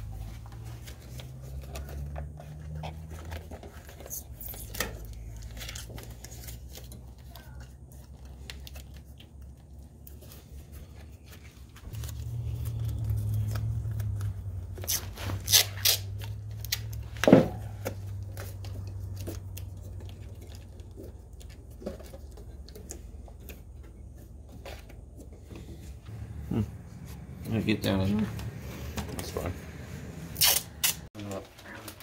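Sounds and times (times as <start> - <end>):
tape clicks and rustles: 0.1 - 26.0.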